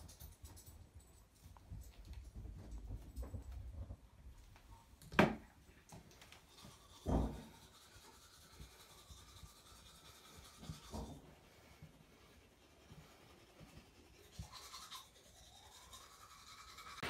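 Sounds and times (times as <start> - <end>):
toothbrush scrubbing teeth: 6.0 - 17.0.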